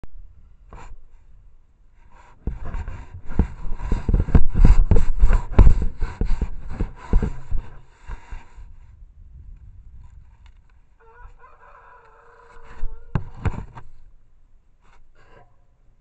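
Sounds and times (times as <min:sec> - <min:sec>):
animal scraping against camera: 0:02.0 - 0:08.8, 0:10.0 - 0:14.1.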